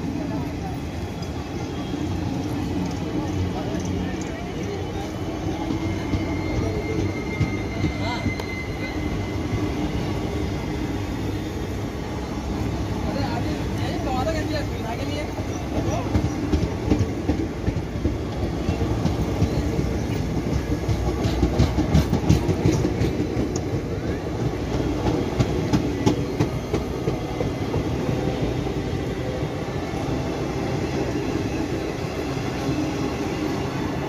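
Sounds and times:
train coaches rumbling past: 0:00.0 - 0:34.0
wheels clicking over rail joints: 0:15.5 - 0:28.1.

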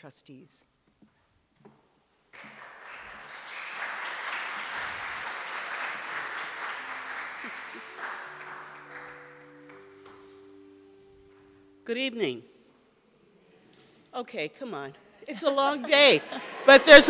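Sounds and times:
audience applause: 0:02.3 - 0:09.8.

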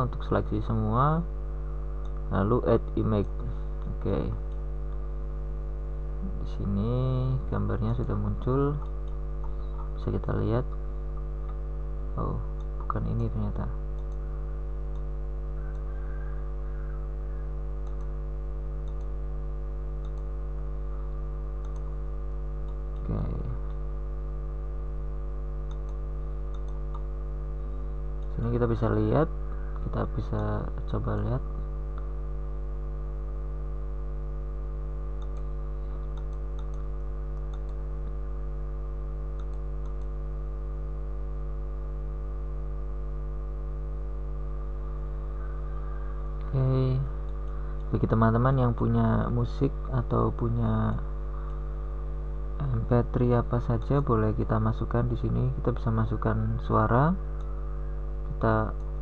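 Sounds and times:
low electrical hum: 0:00.0 - 0:59.0
computer mouse clicks: 0:08.8 - 0:10.0, 0:13.9 - 0:14.3, 0:14.9 - 0:18.2, 0:18.8 - 0:19.2, 0:20.0 - 0:20.3, 0:21.6 - 0:21.9, 0:25.6 - 0:27.1, 0:35.2 - 0:38.2, 0:39.3 - 0:40.2, 0:47.2 - 0:48.0.

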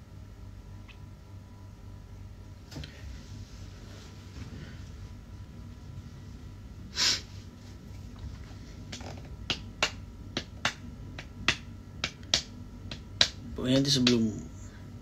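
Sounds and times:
loud nasal breath: 0:06.9 - 0:07.3.

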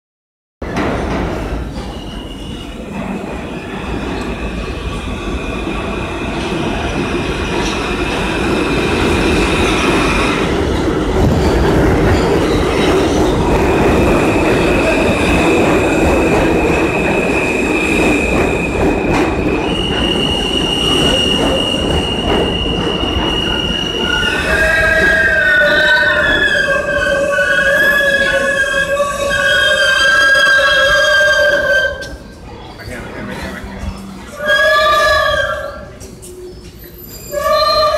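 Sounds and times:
train wheels rumbling on rails: 0:00.6 - 0:37.9
high-pitched wheel squealing: 0:19.7 - 0:32.2.

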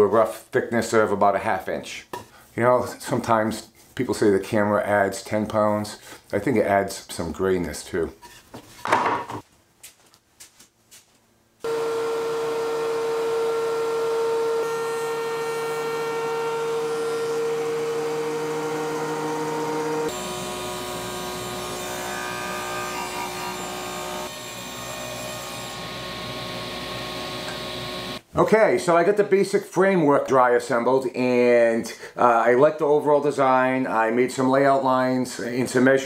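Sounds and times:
thickness planer whine: 0:11.6 - 0:28.2.

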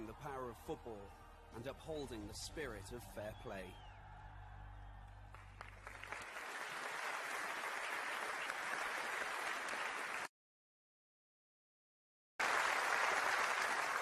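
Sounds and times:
audience applauding: 0:03.6 - 0:10.3, 0:12.4 - 0:14.0.

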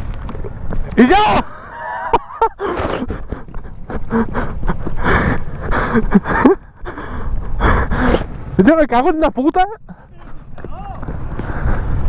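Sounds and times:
man panting and gasping: 0:01.4 - 0:08.4, 0:09.8 - 0:10.6, 0:11.4 - 0:12.0
quick running footsteps: 0:02.8 - 0:07.0, 0:09.9 - 0:12.0.

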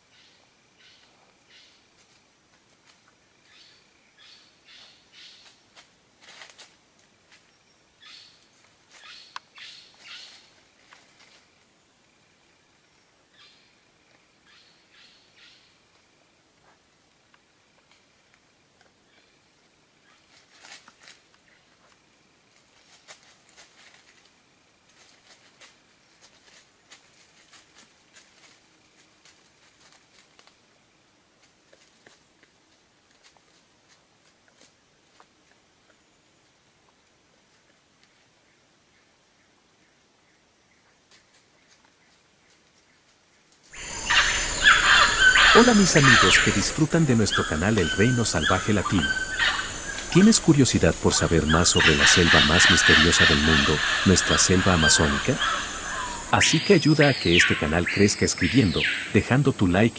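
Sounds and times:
rustling in dry leaves: 0:05.3 - 0:07.6, 0:08.4 - 0:11.6, 0:20.1 - 0:21.8, 0:22.5 - 0:35.5, 0:41.0 - 0:58.1.

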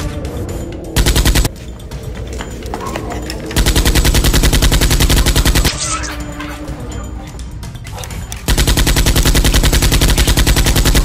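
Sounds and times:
automatic gunfire sound effect: 0:01.0 - 0:01.5, 0:03.6 - 0:05.8, 0:08.5 - 0:11.0.

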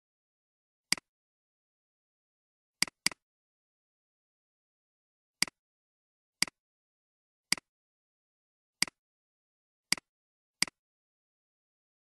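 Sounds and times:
computer mouse clicks: 0:02.8 - 0:03.2, 0:09.9 - 0:10.8.

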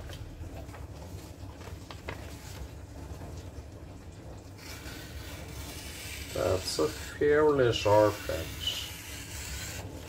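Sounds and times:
paper rustling against knife: 0:00.8 - 0:02.8, 0:04.6 - 0:10.0.

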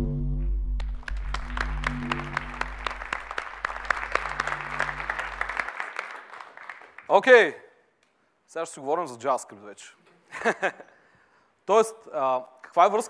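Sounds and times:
film soundtrack music: 0:00.0 - 0:05.7
audience applauding: 0:00.8 - 0:07.3.

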